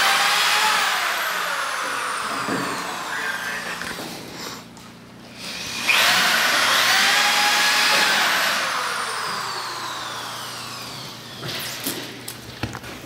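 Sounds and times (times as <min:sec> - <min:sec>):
electric motor whining: 0:00.0 - 0:04.0, 0:05.3 - 0:11.8.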